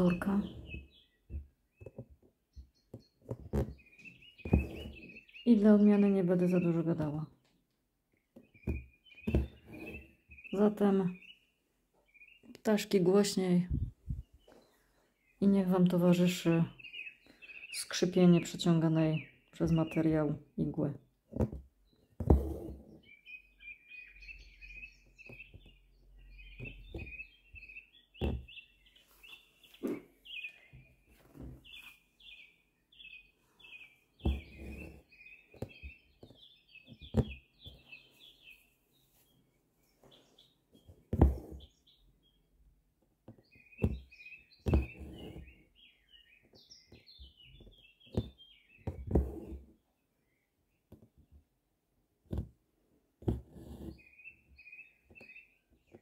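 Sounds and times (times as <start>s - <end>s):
needle and thread through fabric: 0.0s - 7.4s, 8.3s - 11.0s, 19.6s - 23.2s, 25.0s - 30.2s, 33.4s - 41.9s, 43.2s - 45.8s, 46.4s - 49.9s, 52.2s - 54.2s
small birds twittering: 0.0s - 21.2s, 21.8s - 42.7s, 43.3s - 50.9s, 53.5s - 56.0s.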